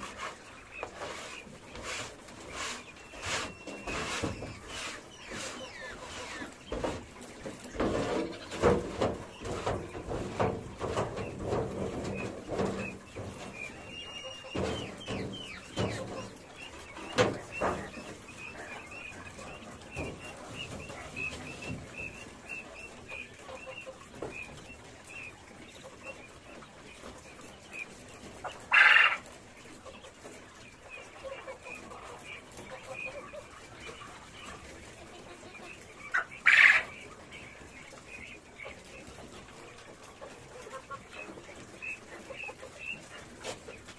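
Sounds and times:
quail chirping: 0:00.0 - 0:43.9
trays knocking on metal wheelbarrow: 0:06.6 - 0:16.4.

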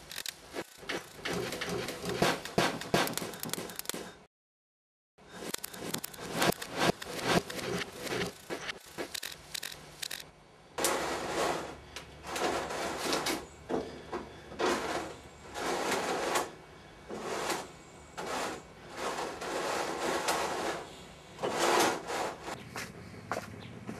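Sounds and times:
scraping rubbing strokes: 0:00.0 - 0:03.9, 0:05.3 - 0:09.7, 0:17.1 - 0:22.6.

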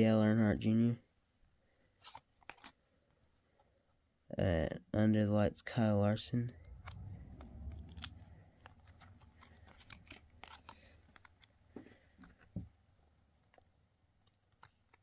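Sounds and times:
trading cards shuffled by hand: 0:07.8 - 0:15.0.

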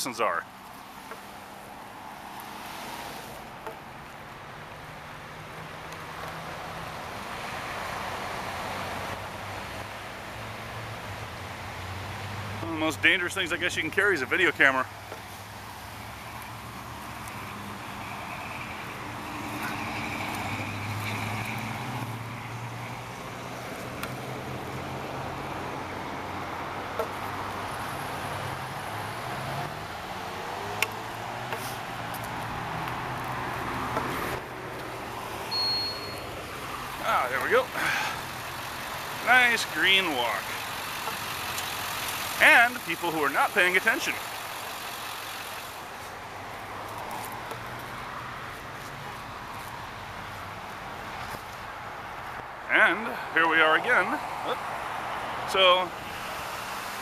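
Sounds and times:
road traffic passing: 0:00.0 - 0:57.0
faint low engine hum: 0:30.8 - 0:47.9.

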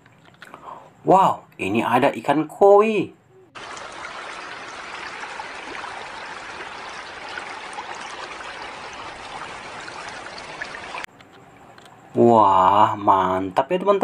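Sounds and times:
water trickling: 0:03.5 - 0:12.3.

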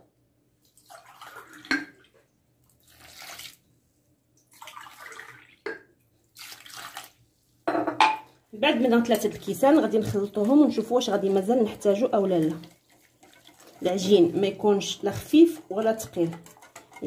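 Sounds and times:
whisk sloshing batter: 0:09.1 - 0:17.0.

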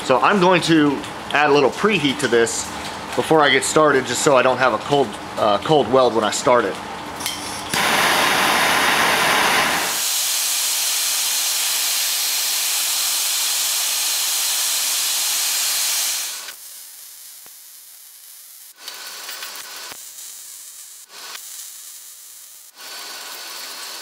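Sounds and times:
gas torch flame hissing: 0:07.6 - 0:24.0.

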